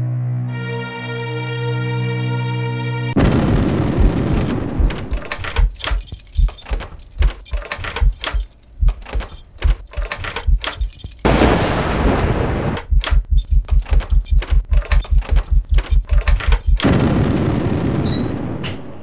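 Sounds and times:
noisy clatter: 3.2 - 11.6, 12.6 - 17.5
loud thumps and crashes: 3.2 - 17.2.

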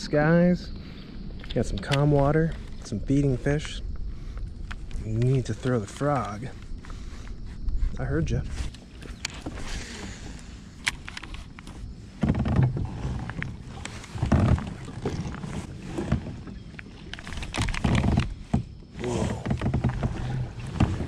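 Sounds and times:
water noise around a kayak: 0.0 - 21.0
wind gusts: 0.0 - 21.0.

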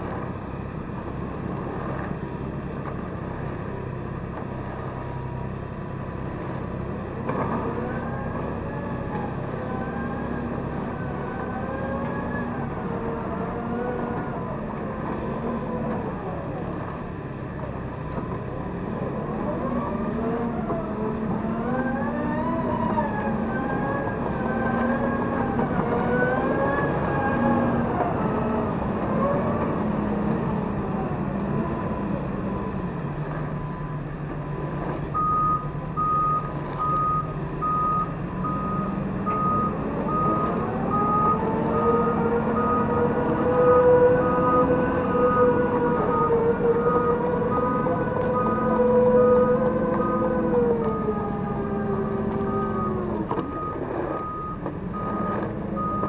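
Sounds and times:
excavator diesel engines running: 0.0 - 56.0
reversing alarm beeping: 33.6 - 56.0.

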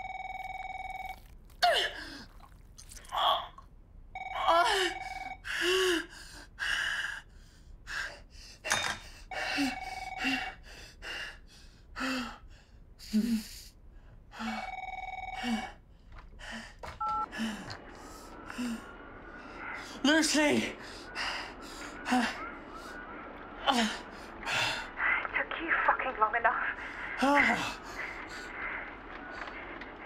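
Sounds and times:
telephone ringing: 0.0 - 1.4, 4.2 - 5.4, 9.3 - 10.5, 14.4 - 15.8, 17.0 - 19.8.

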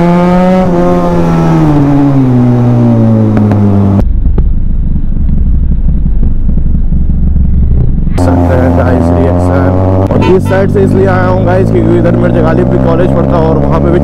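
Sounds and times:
motorcycle engine decelerating: 0.0 - 14.0
motorcycle rumbling at low speed: 0.0 - 14.0.

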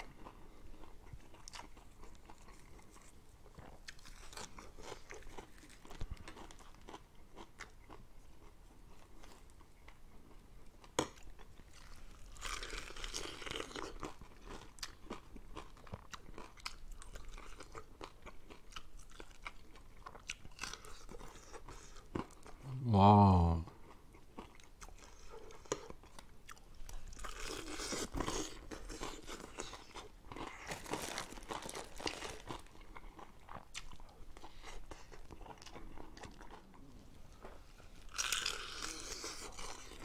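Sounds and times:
person chewing crunchy food: 0.0 - 22.8, 23.7 - 40.0
mouth sounds: 22.6 - 23.8.

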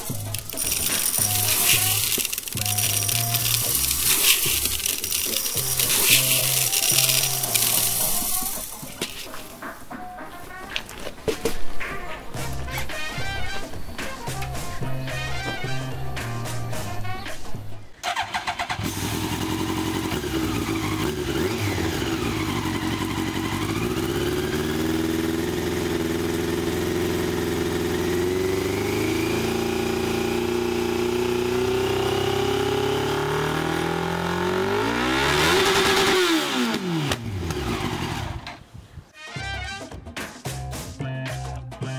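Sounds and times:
motorcycle engine revving: 0.0 - 9.6, 18.1 - 38.6
motorcycle engine cranking: 0.0 - 9.7, 18.0 - 38.6
motorcycle engine idling: 18.8 - 33.6.

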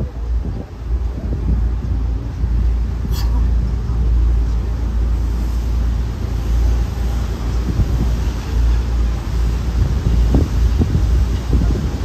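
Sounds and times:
boat engine rumble: 0.0 - 12.0
wind buffeting microphone: 0.0 - 12.0.

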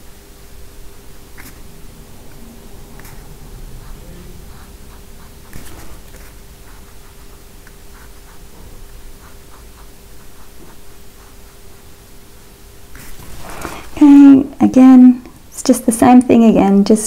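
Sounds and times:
steady hum: 0.0 - 17.0
brush scrape: 2.3 - 12.0, 13.0 - 13.9.

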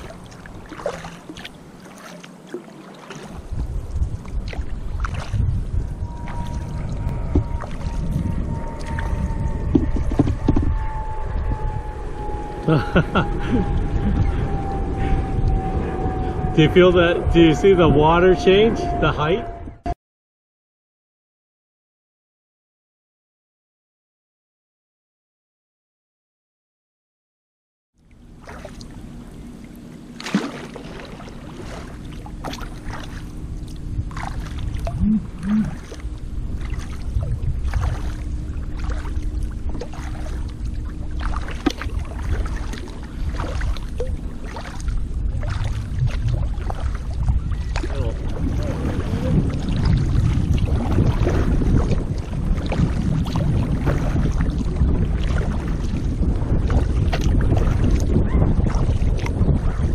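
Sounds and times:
kayak paddle strokes: 0.0 - 5.5, 28.4 - 58.1
water lapping against kayak hull: 0.0 - 11.1, 28.0 - 59.9
wind on microphone: 3.1 - 20.0, 30.8 - 59.9.

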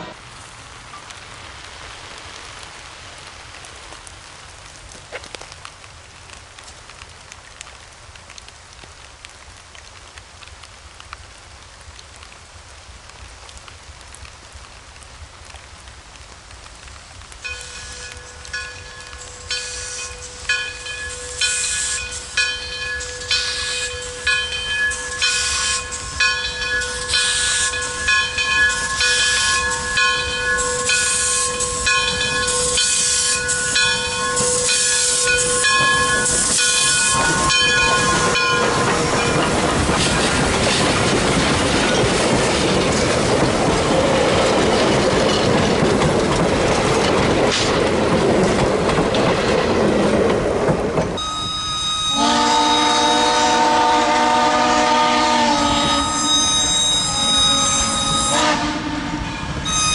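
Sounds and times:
train wheels rolling: 17.4 - 59.9
steam locomotive whistle: 19.4 - 39.4, 51.2 - 59.9.

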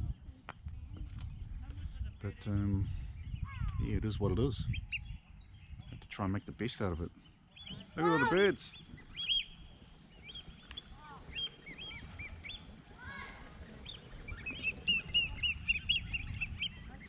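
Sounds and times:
oystercatchers piping calls: 7.5 - 12.8, 13.8 - 17.0.

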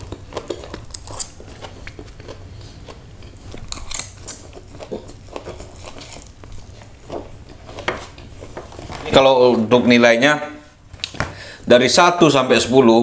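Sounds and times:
chewing with mouth smacks: 0.0 - 8.5.

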